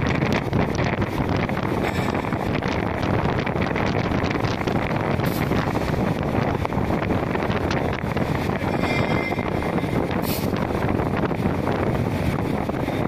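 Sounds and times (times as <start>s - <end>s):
factory machinery din: 1.2s - 12.8s.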